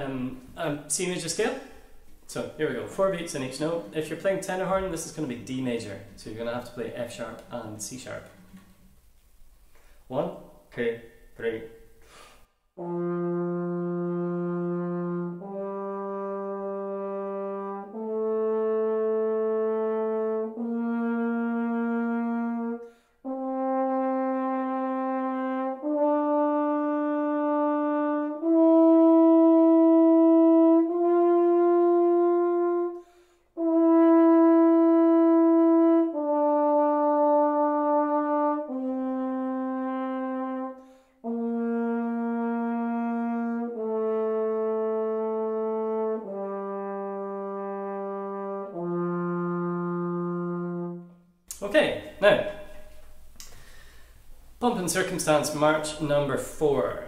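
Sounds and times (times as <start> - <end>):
french horn playing scale: 9.8 - 53.9.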